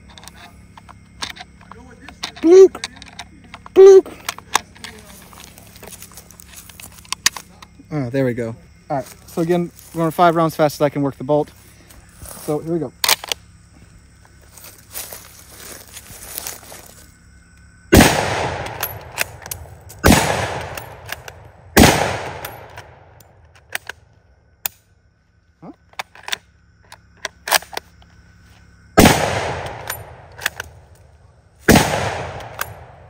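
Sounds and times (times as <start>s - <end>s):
rifle shots with echo: 17.9s - 23.2s, 29.0s - 30.8s, 31.7s - 33.0s
rifle bolt clicks: 29.6s - 30.8s, 31.8s - 32.8s.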